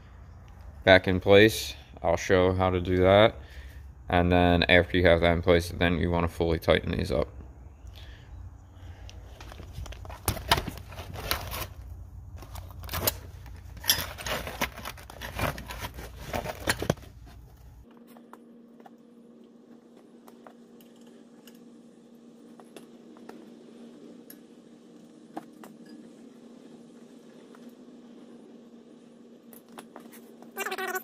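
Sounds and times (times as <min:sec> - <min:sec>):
faint steady hum: 0:00.0 - 0:31.0
metal tools clinking: 0:12.7 - 0:15.6.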